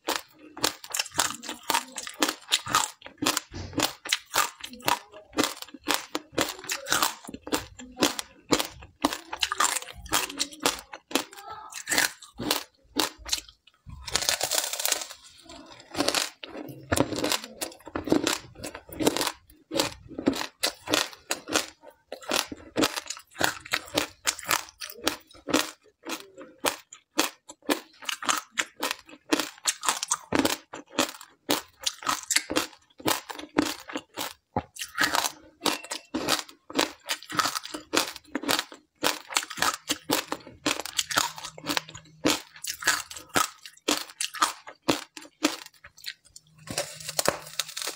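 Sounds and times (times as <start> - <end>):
ice being chewed with crunches: 0.0 - 47.9.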